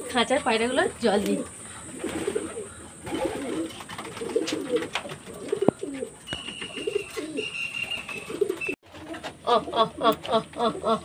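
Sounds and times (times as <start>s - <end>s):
pigeons cooing: 0.0s - 11.0s
thin high whistle: 6.3s - 8.7s.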